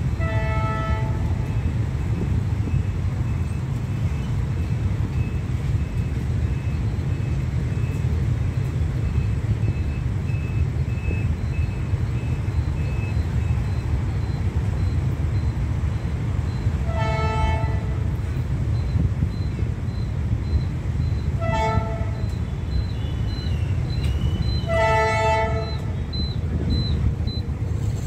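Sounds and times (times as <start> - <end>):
level-crossing signal beeping: 1.4 - 28.0
short horn blast: 24.6 - 25.9.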